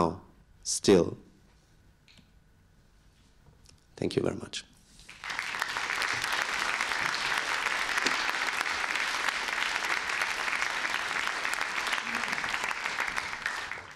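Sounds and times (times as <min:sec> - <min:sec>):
audience applauding: 0:05.1 - 0:13.9.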